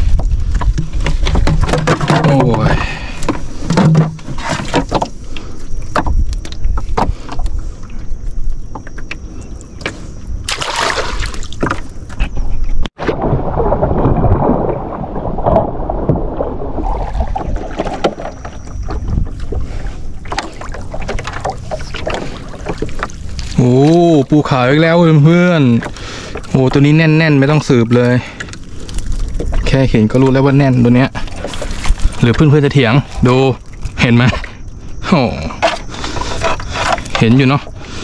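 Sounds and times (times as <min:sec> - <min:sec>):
knocks and clatter on a boat: 0:00.0 - 0:05.2, 0:05.8 - 0:07.6, 0:08.5 - 0:10.0, 0:17.2 - 0:23.2
water washing: 0:10.5 - 0:11.8, 0:13.0 - 0:34.7.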